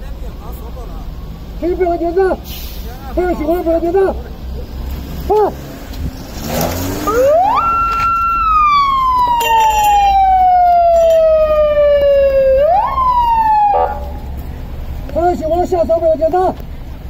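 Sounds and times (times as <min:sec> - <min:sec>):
police siren wailing: 0:07.0 - 0:14.4.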